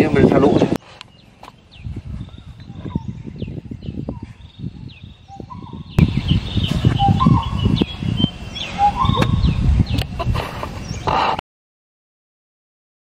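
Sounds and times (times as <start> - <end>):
birds chirping: 0.0 - 11.4
clear bird whistles: 2.2 - 10.0.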